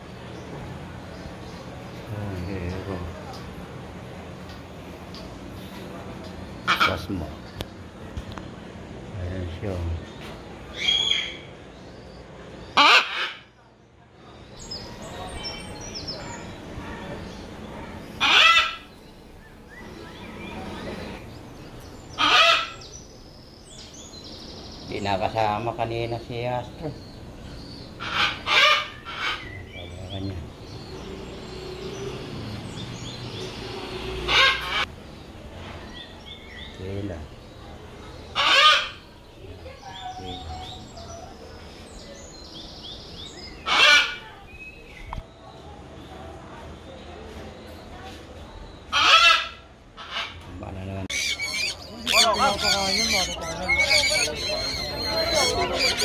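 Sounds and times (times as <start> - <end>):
parrot squawks: 12.8 - 13.5, 18.2 - 18.9, 22.2 - 22.8, 28.0 - 29.4, 38.4 - 39.0, 48.9 - 50.4, 51.1 - 56.0
small birds chirping: 13.8 - 46.1, 50.4 - 56.0
faint bird chirps: 51.0 - 56.0.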